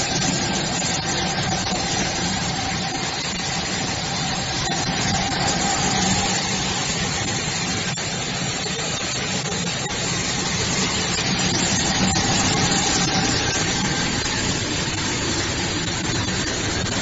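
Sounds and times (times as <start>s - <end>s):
grinding machine running: 0.0s - 17.0s.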